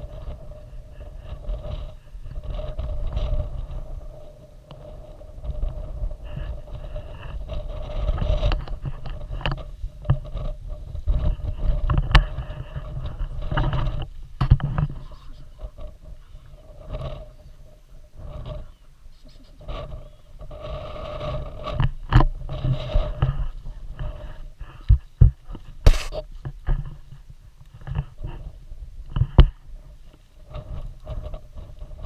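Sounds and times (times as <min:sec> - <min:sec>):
jacket and straps rustling: 0:25.8 - 0:26.2.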